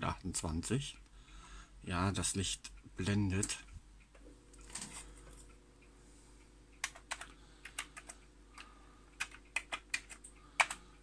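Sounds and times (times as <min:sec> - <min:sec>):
computer keyboard keys clicking: 0:06.8 - 0:10.8.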